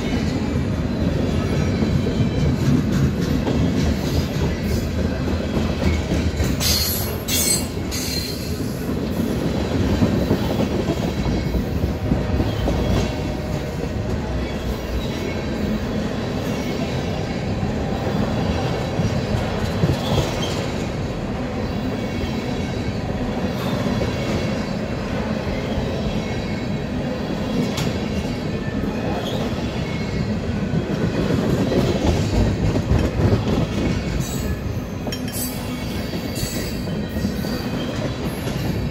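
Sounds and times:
freight train rolling past: 0.0s - 38.9s.

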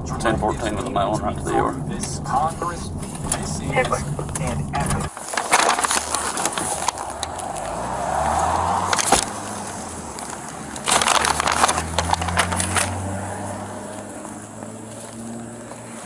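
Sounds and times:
low steady hum: 0.0s - 5.1s
paper envelope crinkling: 5.1s - 7.7s, 10.2s - 12.9s.

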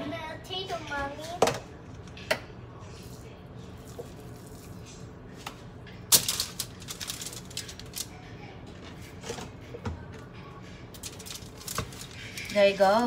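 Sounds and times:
aluminium foil crinkling: 6.1s - 8.3s, 10.9s - 13.0s.

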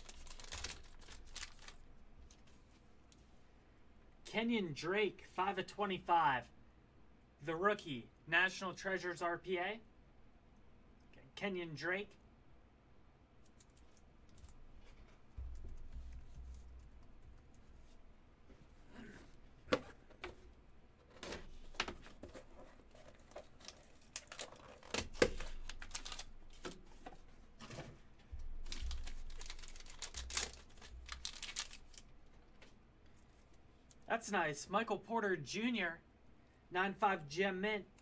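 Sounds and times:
cardboard and paper rustling: 0.0s - 2.6s, 19.7s - 32.6s.

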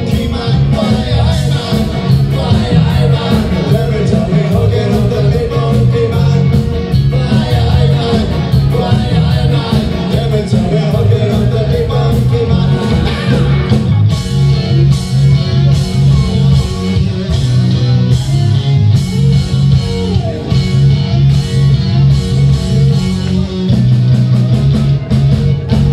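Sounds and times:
drums: 0.0s - 25.9s
electric guitar: 0.0s - 25.9s
pulsing bass line: 0.0s - 25.9s.

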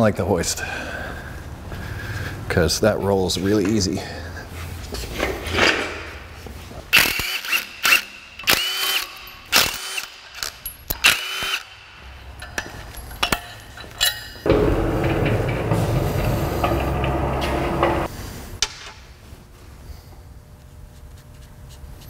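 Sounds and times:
low rumble: 14.5s - 18.1s.

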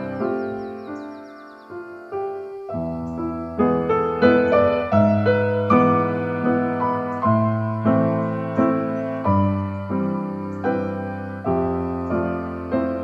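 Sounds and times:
slow piano music: 0.0s - 13.0s.

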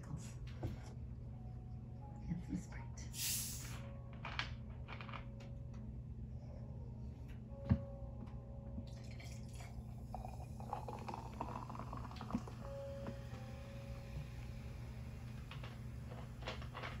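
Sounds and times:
soda pouring and fizzing: 9.0s - 13.2s.

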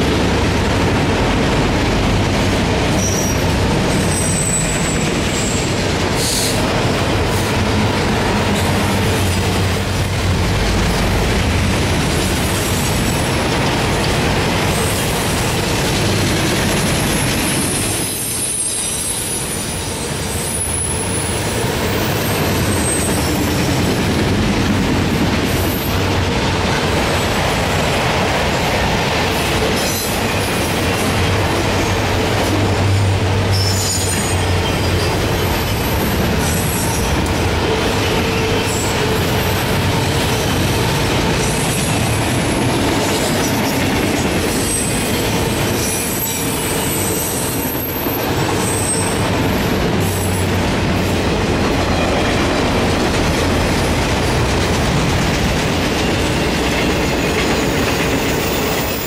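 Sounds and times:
steel wheels rumbling on rails: 0.0s - 59.0s
high-pitched wheel squeals: 4.0s - 6.5s.

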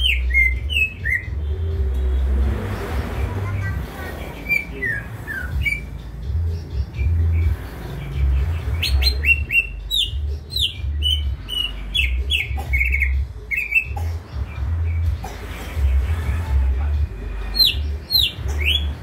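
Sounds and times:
bird singing whistles: 0.0s - 1.4s, 4.4s - 5.9s, 8.8s - 14.0s, 17.5s - 19.0s.

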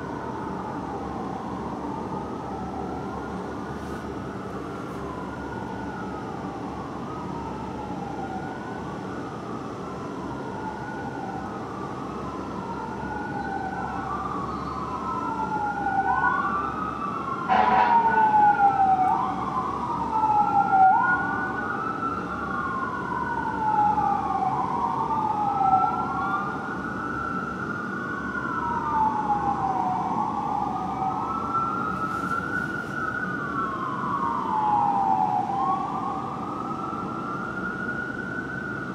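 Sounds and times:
fire engine siren wailing: 0.0s - 38.9s
sharp siren blast: 13.1s - 26.6s.

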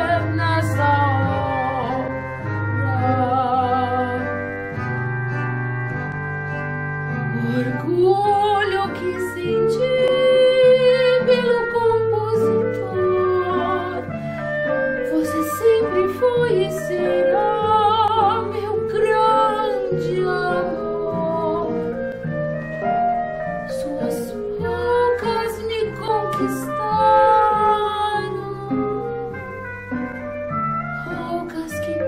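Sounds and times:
woman singing operatically: 0.0s - 4.4s, 7.4s - 14.2s, 15.0s - 22.0s, 23.7s - 29.3s, 31.0s - 32.0s
instrumental accompaniment: 0.0s - 32.0s.

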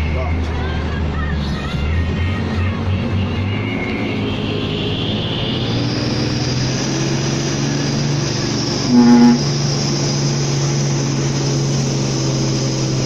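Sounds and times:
truck diesel engine running: 0.0s - 13.0s
short horn toot: 8.8s - 9.5s.

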